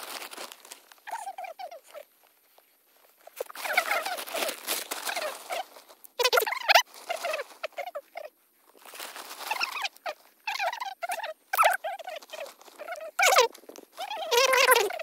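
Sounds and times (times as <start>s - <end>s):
dry straw rustling: 0.0s - 10.4s, 11.8s - 15.0s
high-pitched animal calls: 1.0s - 2.1s, 3.4s - 8.3s, 9.4s - 15.0s.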